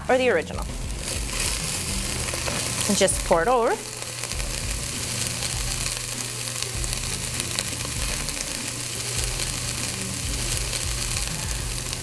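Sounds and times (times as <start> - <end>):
meat sizzling in a pot: 0.0 - 12.0.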